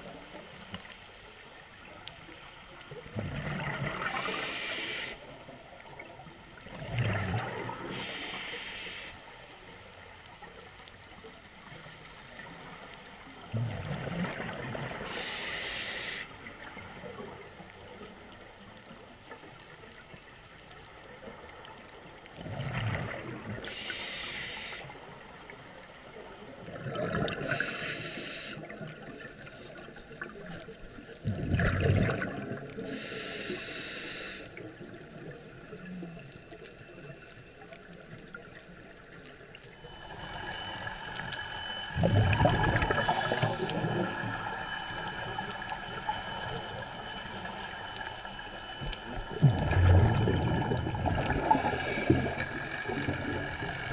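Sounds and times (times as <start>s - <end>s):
exhaled bubbles gurgling: 2.8s - 9.1s, 12.3s - 18.4s, 21.3s - 25.5s, 26.1s - 34.0s, 34.6s - 53.9s
regulator breathing hiss: 4.0s - 5.4s, 7.8s - 9.4s, 15.0s - 16.6s, 23.6s - 25.2s, 27.5s - 28.8s, 32.8s - 34.6s, 39.9s - 42.1s, 42.7s - 53.9s.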